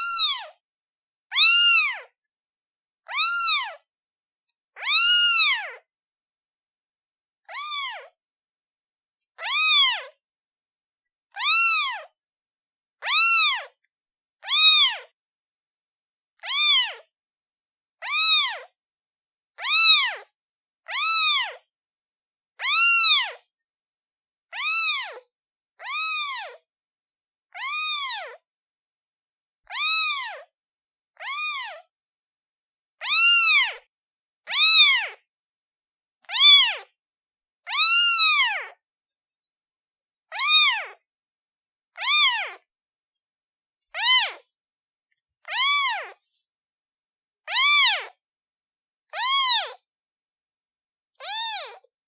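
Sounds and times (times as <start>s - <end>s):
kitten meowing: 0.0s - 0.6s, 1.3s - 2.1s, 3.0s - 3.8s, 4.8s - 5.8s, 7.4s - 8.1s, 9.4s - 10.2s, 11.3s - 12.1s, 13.0s - 13.8s, 14.4s - 15.1s, 16.4s - 17.1s, 18.0s - 18.7s, 19.6s - 20.3s, 20.9s - 21.6s, 22.6s - 23.4s, 24.5s - 26.6s, 27.6s - 28.4s, 29.7s - 30.5s, 31.2s - 31.8s, 33.0s - 35.2s, 36.2s - 36.9s, 37.6s - 38.8s, 40.3s - 41.0s, 41.9s - 42.6s, 43.9s - 44.5s, 45.4s - 46.4s, 47.4s - 48.2s, 49.1s - 49.8s, 51.2s - 51.9s.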